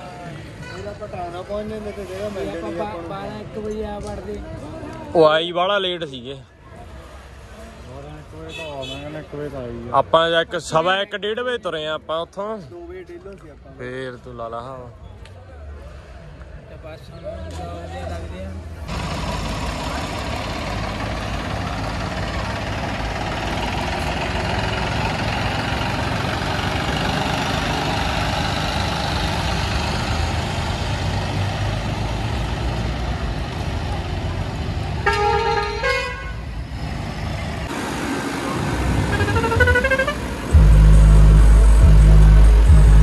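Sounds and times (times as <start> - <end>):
traffic: 0.0 - 43.0
vehicle horn blast: 8.5 - 9.1, 35.0 - 36.4, 39.1 - 40.3
tractor engines running: 17.5 - 43.0
horn playing rising notes: 39.0 - 43.0.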